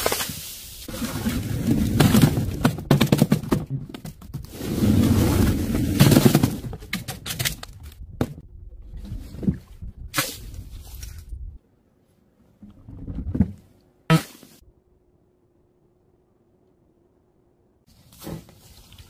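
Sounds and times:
plastic bottles clattering down board: 1.2s - 4.2s.

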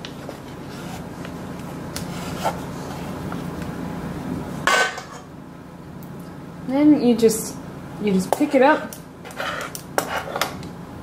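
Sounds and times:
knife scraping through dough: 9.2s - 10.6s.

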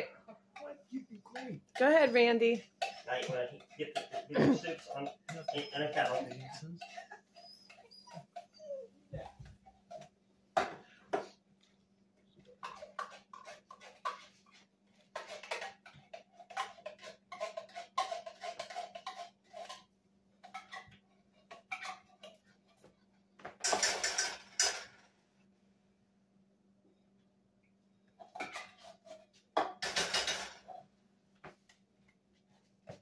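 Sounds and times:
metal spoon scraping cans and pot: 2.8s - 7.1s, 12.6s - 22.4s, 23.6s - 25.0s, 28.2s - 30.8s.

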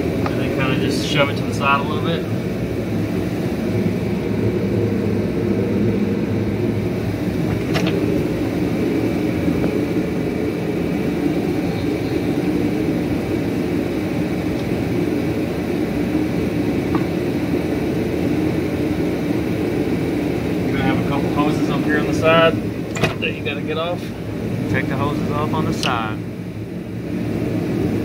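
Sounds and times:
mechanical whirring drone: 0.0s - 28.0s.

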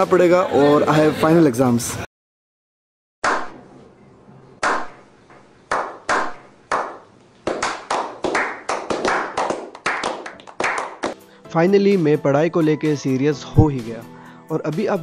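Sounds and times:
group slow clapping: 5.7s - 11.2s.

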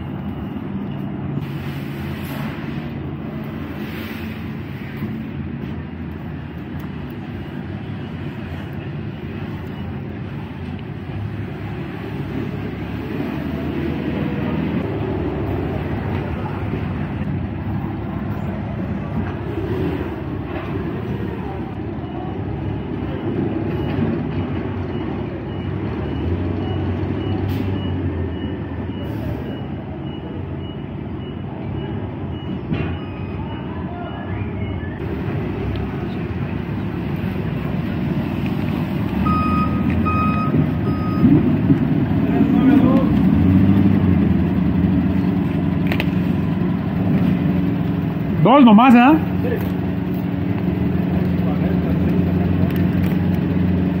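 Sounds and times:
faint high beep: 21.9s - 35.0s, 39.2s - 41.4s.

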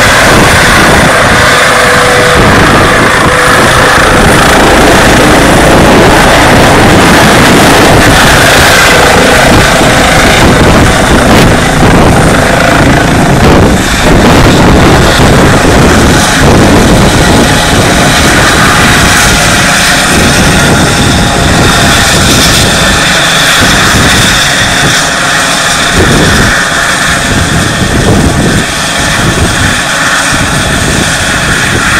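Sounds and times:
low rumble: 0.0s - 24.9s
helicopter rotor rushing: 0.0s - 31.9s
turbine engine high whine: 0.0s - 31.9s.

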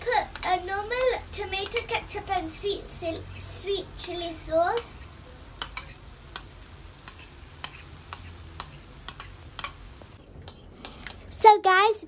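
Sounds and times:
noodles frying in a pan: 0.0s - 11.4s.

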